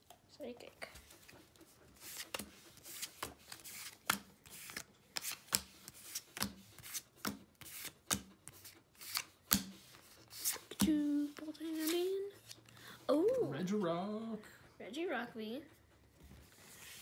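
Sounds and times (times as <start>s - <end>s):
trading cards swishing: 2.0s - 12.6s.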